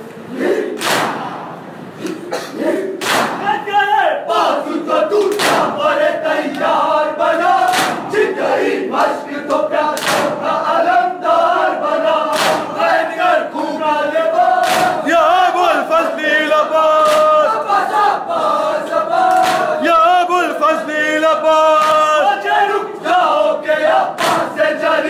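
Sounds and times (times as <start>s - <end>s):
hands slapping chests in unison: 0.7s - 1.3s, 3.0s - 3.6s, 5.2s - 6.8s, 7.6s - 8.3s, 9.0s - 10.5s, 12.3s - 13.0s, 14.6s - 15.1s, 17.0s - 17.4s, 19.2s - 19.8s, 21.7s - 22.2s, 24.1s - 24.6s
men chanting together: 2.3s - 25.0s.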